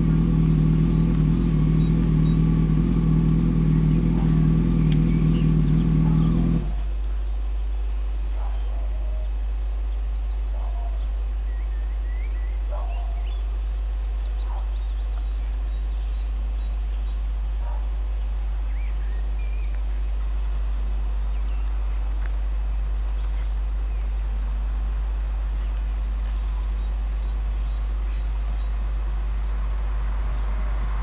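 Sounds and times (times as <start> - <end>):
steady low rumble: 0.0 - 8.2, 13.3 - 31.0
small birds chirping faintly: 0.0 - 31.0.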